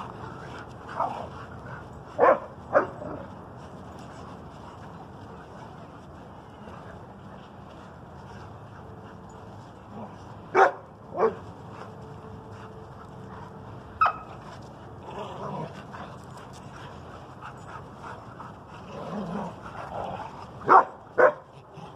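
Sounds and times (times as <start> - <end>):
dogs barking: 2.1 - 3.3, 10.5 - 11.5, 14.0 - 14.4, 20.6 - 21.5.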